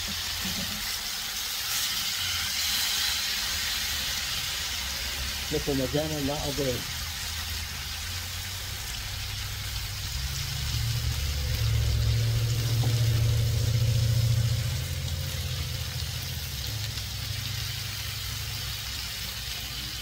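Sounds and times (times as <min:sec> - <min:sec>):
meat sizzling: 0:00.0 - 0:20.0
low rumble: 0:08.0 - 0:18.9.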